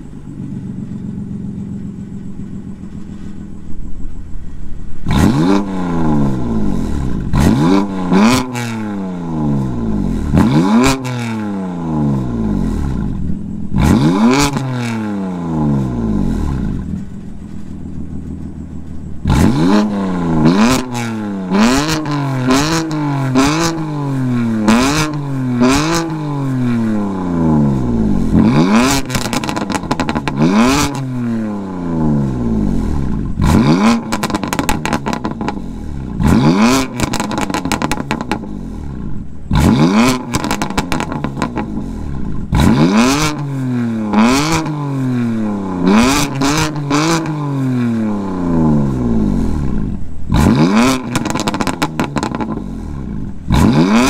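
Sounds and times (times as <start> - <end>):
car engine revving: 0.0 - 54.0
exhaust crackles and pops: 12.6 - 54.0.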